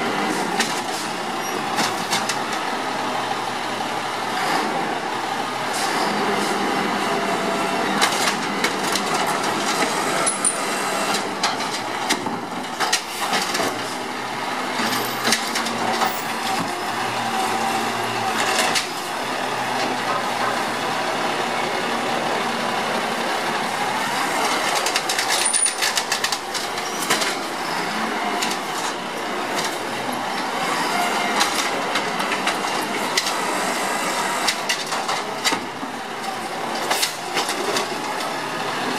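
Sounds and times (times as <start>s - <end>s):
garbage truck engine running: 0.0s - 38.9s
hydraulic arm lifting carts: 0.1s - 38.9s
knocks and clatter of carts: 0.3s - 2.7s, 7.9s - 19.0s, 19.6s - 20.8s, 24.2s - 38.9s.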